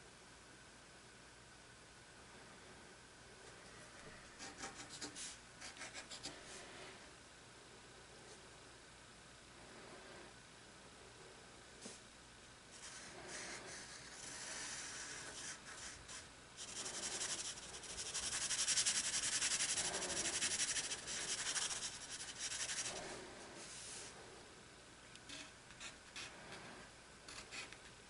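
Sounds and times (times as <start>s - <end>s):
pencil scratching on paper: 12.8s - 23.0s.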